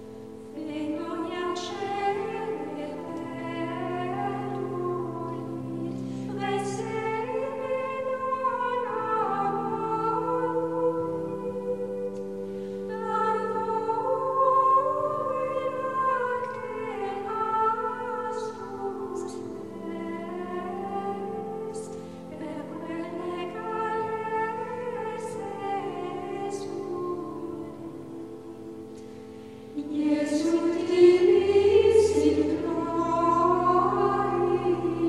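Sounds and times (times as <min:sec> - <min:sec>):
long held chords: 0:00.0 - 0:35.0
slow wavering singing: 0:29.7 - 0:35.0.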